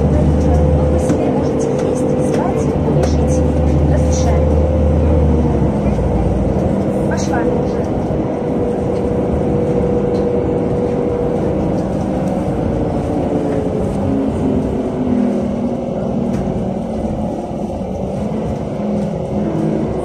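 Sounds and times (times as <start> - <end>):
bus engine hum: 0.0 - 20.0
low road rumble: 0.0 - 20.0.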